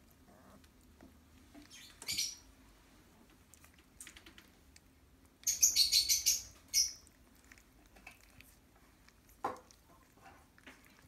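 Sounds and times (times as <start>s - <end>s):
puppies squeaking: 1.5s - 2.5s.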